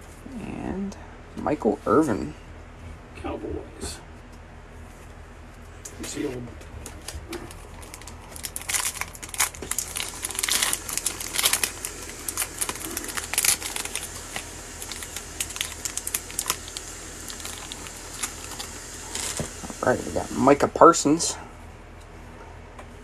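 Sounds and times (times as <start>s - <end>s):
foil wrapper crinkling: 6.0s - 20.5s.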